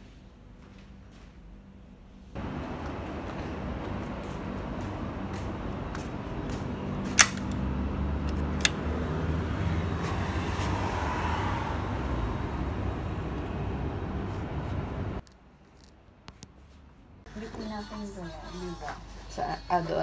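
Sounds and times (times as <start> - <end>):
traffic rumble: 2.3 - 20.0
metal gate latch clicks: 7.2 - 7.6.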